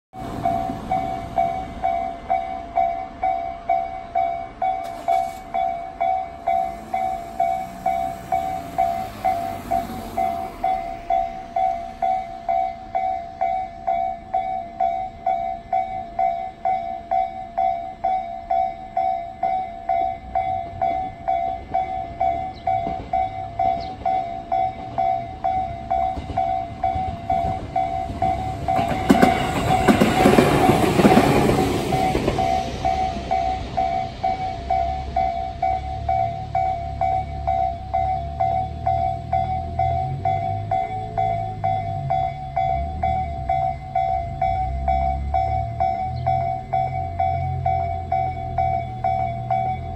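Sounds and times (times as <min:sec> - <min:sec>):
level-crossing bell ringing: 0:00.2 - 0:49.9.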